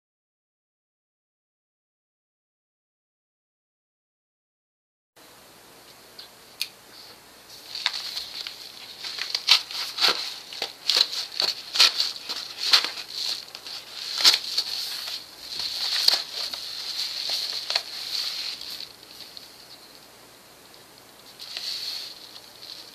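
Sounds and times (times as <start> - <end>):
paper envelope crinkling and tearing: 7.6 - 19.9, 21.2 - 22.9.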